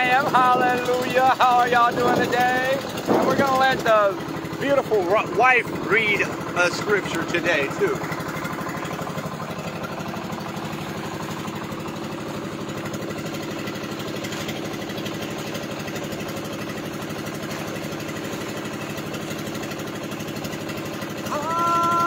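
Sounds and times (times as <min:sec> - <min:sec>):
boat engine chugging: 0:00.0 - 0:22.0.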